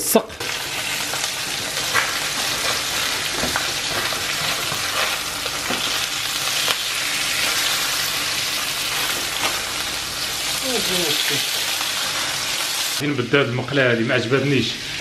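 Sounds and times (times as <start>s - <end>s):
fish sizzling in a frying pan: 0.1s - 13.0s.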